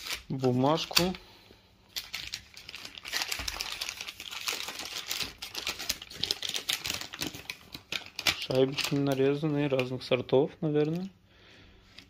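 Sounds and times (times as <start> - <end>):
paper wrapping crinkling: 0.0 - 1.2, 1.9 - 9.9.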